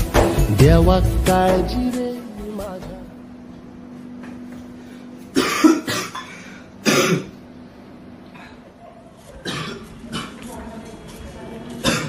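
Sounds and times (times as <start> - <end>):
man coughing hard: 5.3 - 7.4, 9.4 - 10.4.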